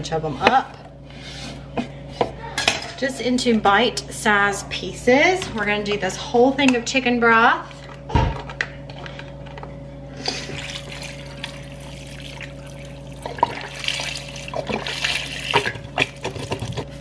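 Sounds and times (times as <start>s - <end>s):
broth pouring and splashing: 10.5s - 16.5s.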